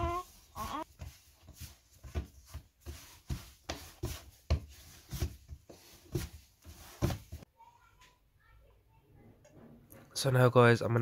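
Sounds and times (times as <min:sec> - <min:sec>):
dough kneaded on worktop: 0:00.0 - 0:07.6.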